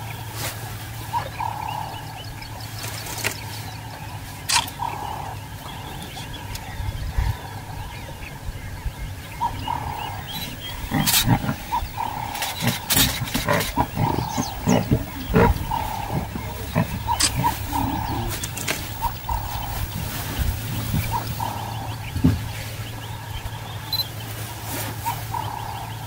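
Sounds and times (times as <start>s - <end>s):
lion cubs growling: 0.9s - 8.4s, 9.2s - 26.0s.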